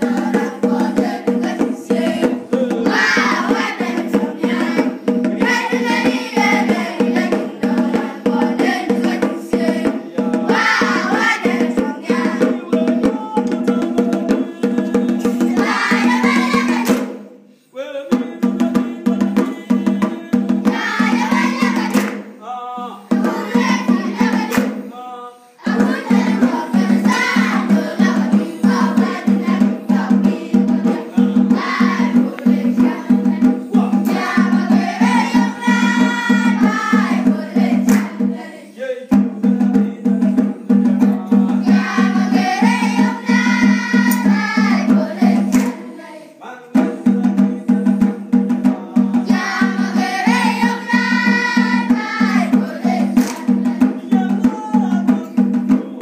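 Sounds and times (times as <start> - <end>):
children singing: 0.0 - 17.0, 18.8 - 24.9, 25.5 - 38.9, 41.2 - 46.5, 49.0 - 55.5
steady rhythmic beat: 0.0 - 17.5, 18.1 - 24.9, 25.6 - 56.0.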